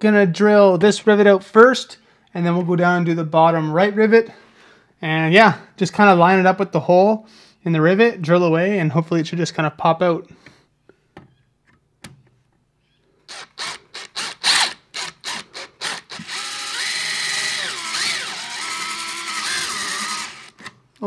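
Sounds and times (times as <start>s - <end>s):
cordless drill drilling: 13.3s - 20.8s.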